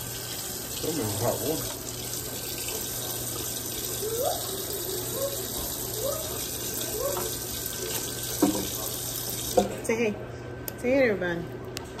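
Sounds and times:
tap running into metal sink: 7.1 - 9.8.

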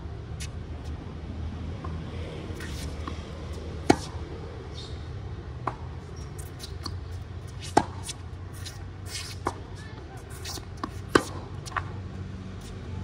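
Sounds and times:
tennis ball bouncing on hard court: 1.8 - 4.9, 5.6 - 12.0
racket striking tennis ball: 2.5 - 4.3, 5.6 - 12.0.

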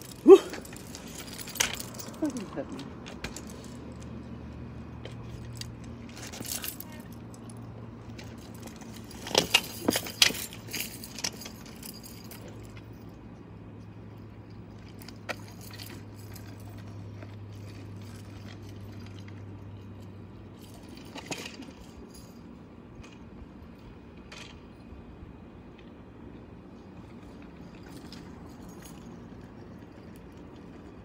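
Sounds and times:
keys jangling: 0.0 - 4.0, 5.2 - 13.2, 14.7 - 22.6, 27.6 - 30.8.

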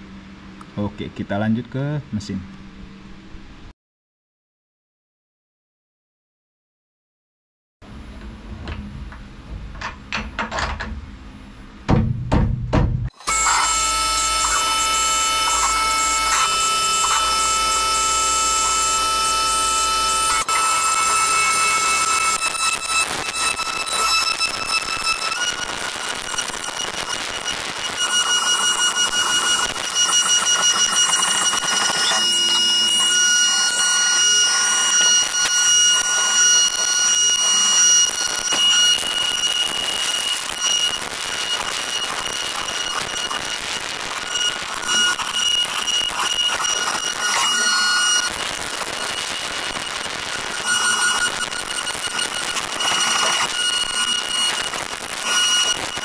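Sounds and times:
end mill cutting metal: 13.2 - 27.2, 28.0 - 55.8
milling machine whine: 13.2 - 56.0.

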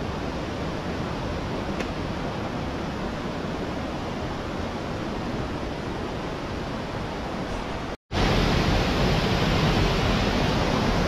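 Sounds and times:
stream rushing over rocks: 8.2 - 11.0.

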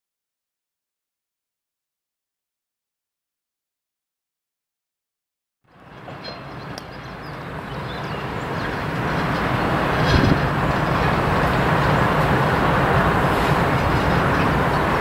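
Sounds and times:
locomotive engine rumble: 5.7 - 15.0
train wheels clattering on rails: 5.7 - 15.0.

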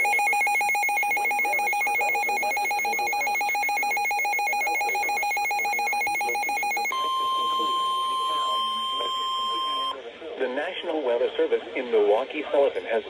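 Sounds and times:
two-tone electronic alarm warble: 0.0 - 10.0.

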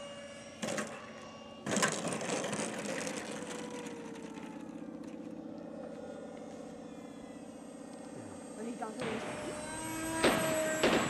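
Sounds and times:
model airplane engine idling: 0.0 - 11.0.

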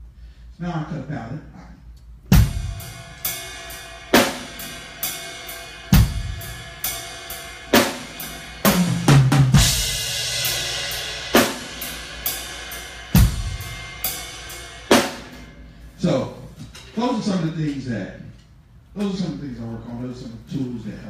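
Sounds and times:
drum kit slow groove: 2.2 - 17.9
crash cymbal ringing: 2.5 - 8.9, 9.5 - 16.0.

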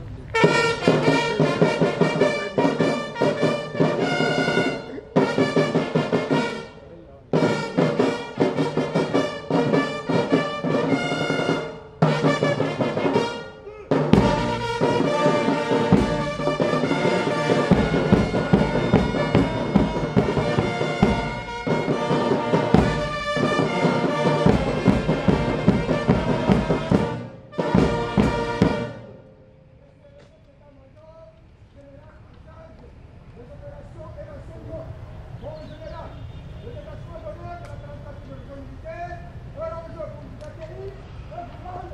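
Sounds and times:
military brass band playing: 0.2 - 29.8.

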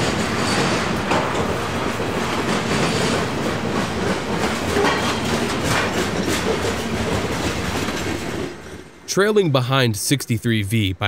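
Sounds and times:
train wheels rumbling on rails: 0.0 - 9.1.

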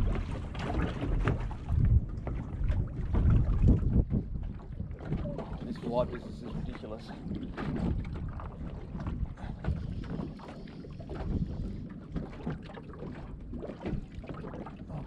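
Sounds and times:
water slapping against boat hull: 0.0 - 15.0
wind buffeting microphone: 0.0 - 15.0.

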